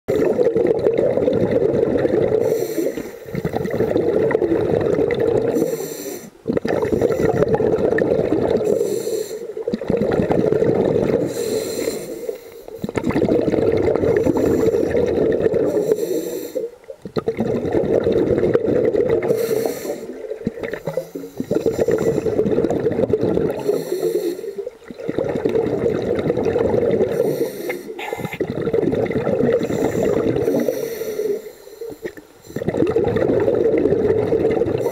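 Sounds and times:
exhale bubbling underwater: 0.1s - 34.9s
regulator inhale hiss: 2.4s - 3.4s, 5.6s - 6.4s, 8.6s - 9.6s, 11.2s - 13.0s, 14.2s - 15.0s, 15.6s - 16.8s, 19.3s - 20.2s, 20.9s - 22.4s, 23.6s - 24.7s, 27.1s - 28.4s, 29.6s - 32.7s.

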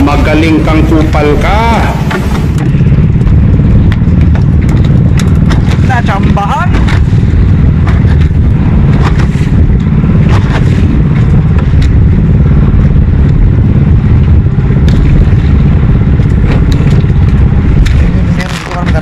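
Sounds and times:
small engine droning: 0.0s - 19.0s
knocks and clatters: 2.0s - 7.1s.

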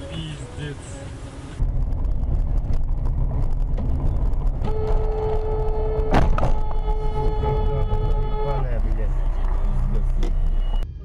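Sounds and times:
vehicle road and engine rumble: 0.0s - 11.0s
sharp bang: 4.6s - 8.4s
car horn steady note: 4.6s - 9.4s.

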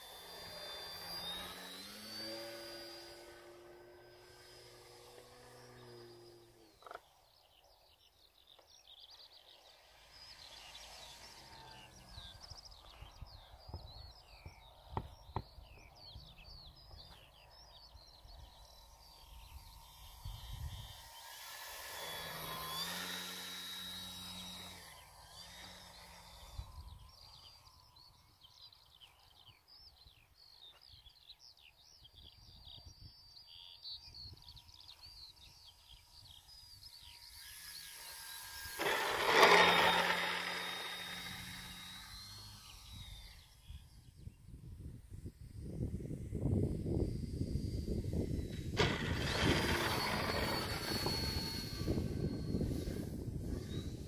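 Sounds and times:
electric motor whine: 0.0s - 7.5s, 8.6s - 29.2s, 33.5s - 54.0s
small birds chirping: 0.0s - 44.6s, 47.0s - 54.0s
wind rumbling on microphone: 43.0s - 54.0s.

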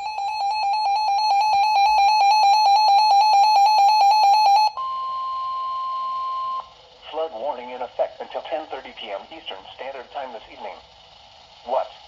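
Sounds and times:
steady warning alarm tone: 0.0s - 6.8s
faint radio hiss: 4.6s - 12.0s.

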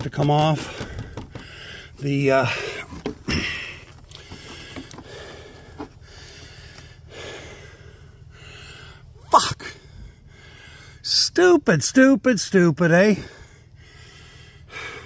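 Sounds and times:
background hiss: 0.2s - 15.0s
man sneezing: 9.2s - 9.8s.

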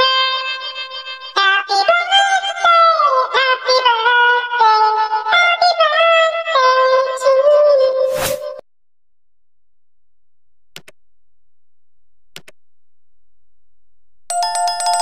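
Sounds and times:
mouse click sound effects: 10.8s - 11.0s, 12.4s - 12.6s
bright bell chime: 14.3s - 15.0s.

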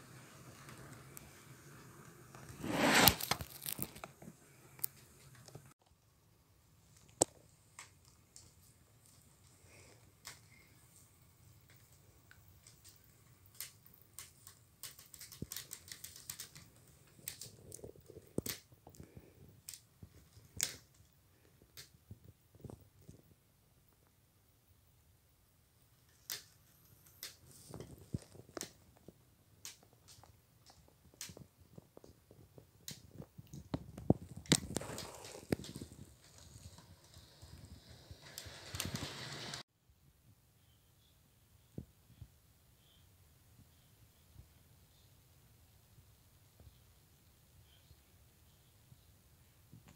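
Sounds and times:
model train wheels clicking: 36.7s - 39.6s.

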